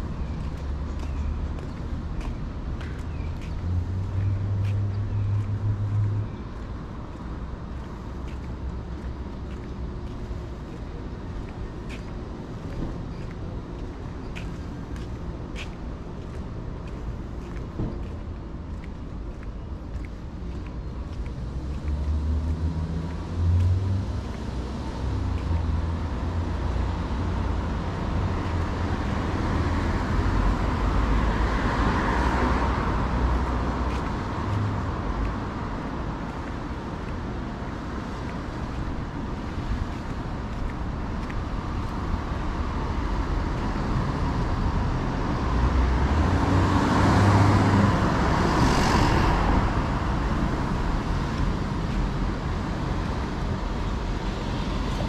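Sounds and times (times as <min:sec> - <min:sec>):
road traffic noise: 0:00.0 - 0:55.0
vehicle passing close by: 0:43.5 - 0:52.9.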